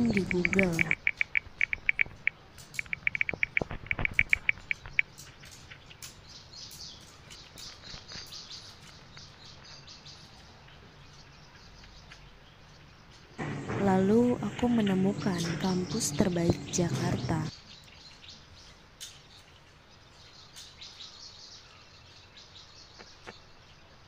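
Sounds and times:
phone keyboard tapping clicks: 0:00.0 - 0:05.0
faint high ticks: 0:00.0 - 0:08.0.

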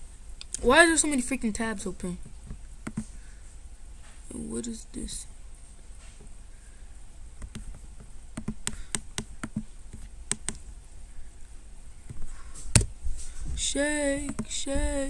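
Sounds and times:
laptop clicks: 0:08.4 - 0:10.6.

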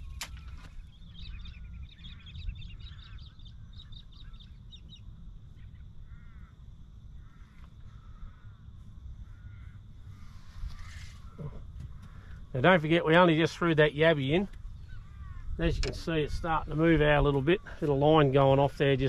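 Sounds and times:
high bird chirps: 0:00.0 - 0:05.0
lower arched bird calls: 0:00.0 - 0:19.0
steady low rumble: 0:00.0 - 0:19.0.

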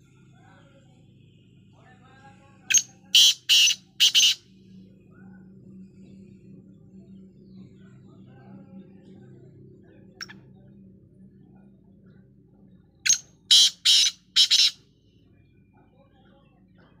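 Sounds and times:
faint chirp: 0:00.0 - 0:09.4, 0:13.0 - 0:16.6
bird calling harsh grating notes: 0:02.7 - 0:04.4, 0:13.1 - 0:14.8.

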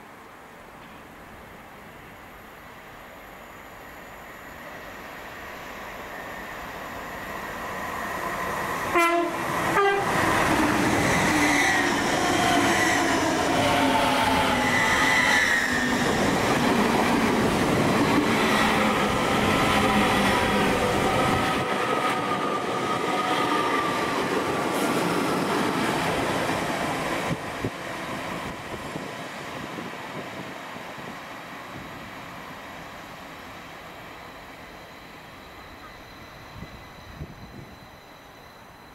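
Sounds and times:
train wheels rushing on rail: 0:00.8 - 0:38.9
train whining tones: 0:02.2 - 0:38.9
train horn blasts: 0:08.9 - 0:10.2.

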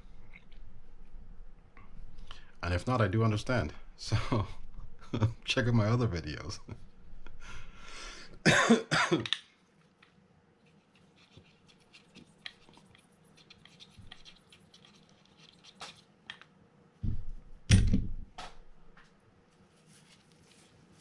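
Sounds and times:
fingers scratching metal parts: 0:11.0 - 0:16.0.

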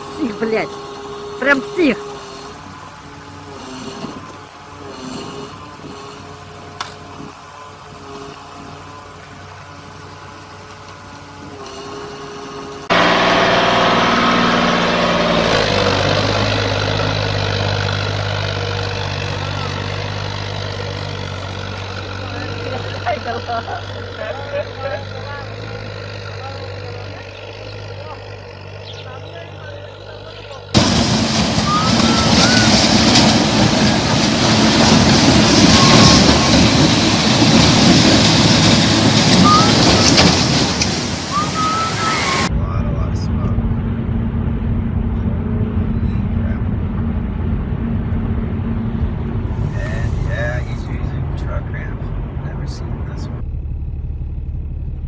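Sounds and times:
tractor engine running under load: 0:00.0 - 0:55.0
water churning and splashing: 0:30.8 - 0:42.5
short high calls: 0:31.5 - 0:33.0, 0:35.6 - 0:36.8, 0:39.3 - 0:42.5.

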